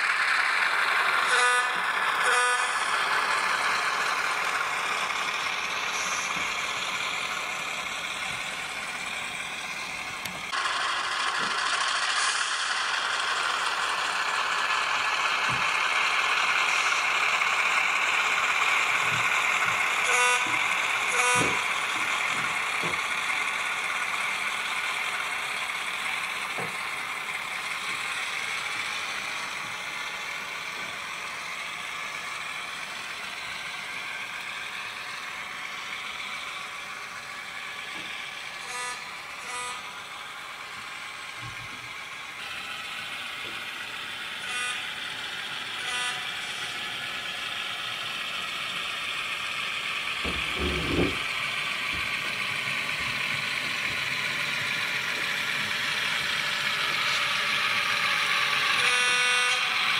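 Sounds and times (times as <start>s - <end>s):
model train diesel engine sound: 0.0s - 59.9s
short horn toots: 1.2s - 2.8s.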